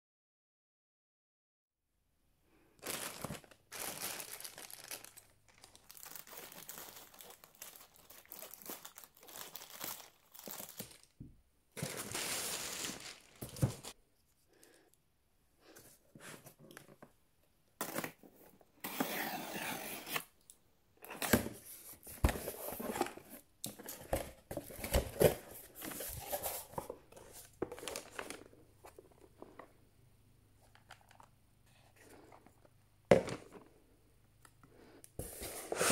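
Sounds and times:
plastic mailer crinkling and tearing: 2.8 - 11.1, 11.8 - 14.0.

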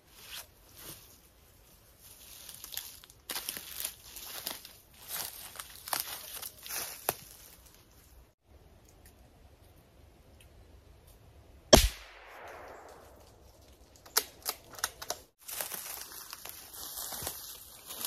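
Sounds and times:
rustling in dry leaves: 0.0 - 8.4, 15.3 - 18.0
gunshot echoing: 11.7 - 13.2.

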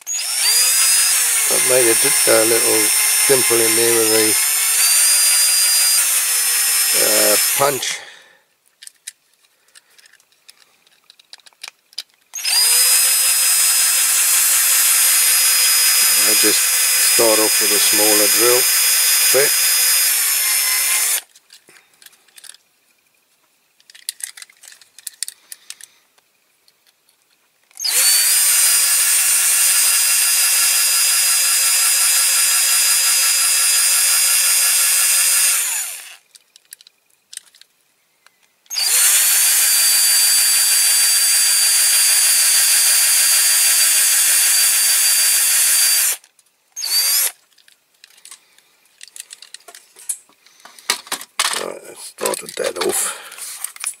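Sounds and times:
electric drill drilling metal: 0.0 - 8.0, 12.4 - 21.3, 27.8 - 36.2, 38.7 - 46.2, 46.8 - 47.4.

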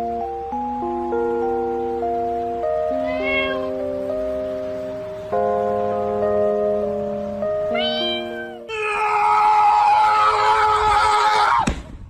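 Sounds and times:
soft background music: 0.0 - 8.7
high meow-like cry: 2.9 - 3.8, 7.7 - 11.6.

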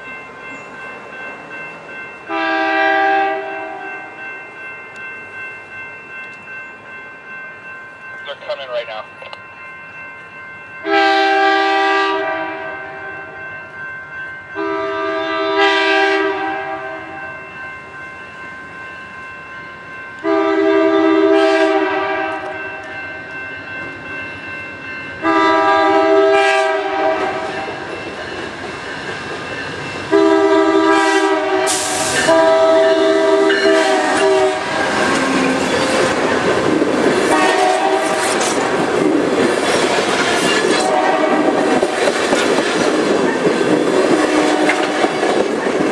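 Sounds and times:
train rumble: 0.0 - 45.9
locomotive air horn blasts: 2.3 - 3.9, 10.8 - 13.1, 14.6 - 17.2, 20.2 - 22.6, 25.2 - 27.5, 30.1 - 34.7, 37.3 - 38.2, 40.8 - 41.6, 44.2 - 45.0.

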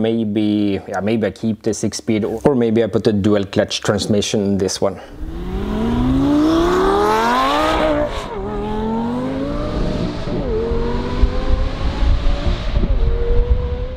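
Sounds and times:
car engine accelerating through gears: 5.1 - 13.9.

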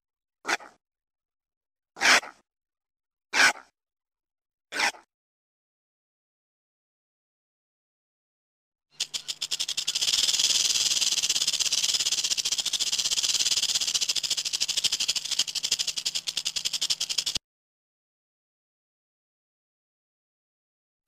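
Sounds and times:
rattlesnake tail rattle buzzing: 8.9 - 17.4.

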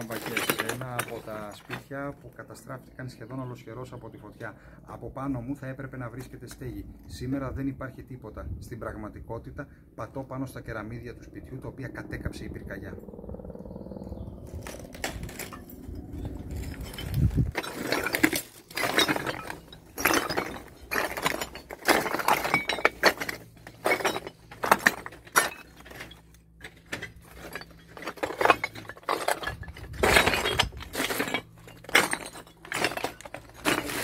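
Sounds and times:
footsteps crunching on broken tiles: 0.0 - 2.0, 14.6 - 34.0.

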